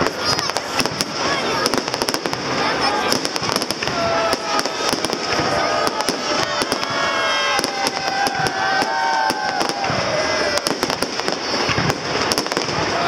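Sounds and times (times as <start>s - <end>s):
fireworks bangs and crackling: 0.0s - 13.0s
fireworks whistling: 0.0s - 13.0s.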